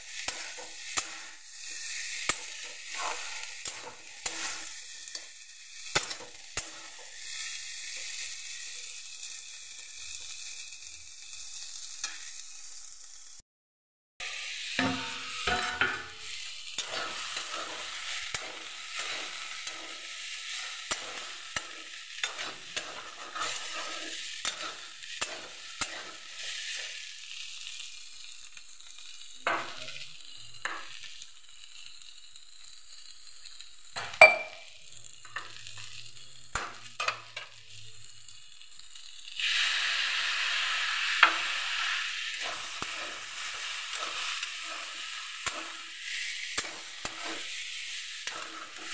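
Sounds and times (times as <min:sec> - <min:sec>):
food sizzling in oil: 0:00.0 - 0:13.4, 0:14.2 - 0:48.9
metal spatula scraping pan: 0:00.2 - 0:05.2, 0:14.8 - 0:27.0, 0:41.2 - 0:48.9
sharp metal clank: 0:14.8 - 0:16.2, 0:34.0 - 0:34.6.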